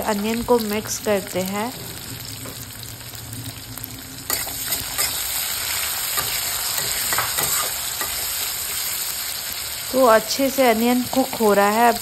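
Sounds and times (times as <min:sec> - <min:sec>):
onions sizzling in oil: 0:00.0 - 0:12.0
spatula scraping pan: 0:04.3 - 0:09.0.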